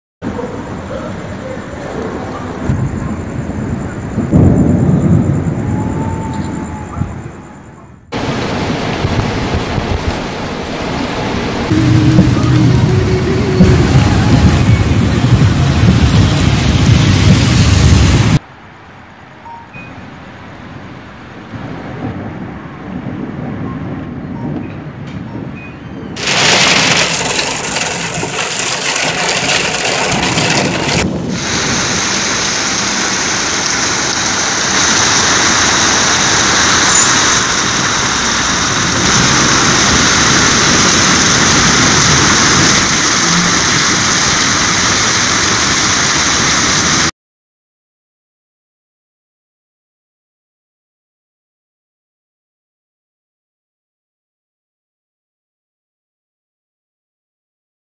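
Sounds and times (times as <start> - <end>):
heavy rain pouring: 8.0 - 18.4, 26.2 - 47.1.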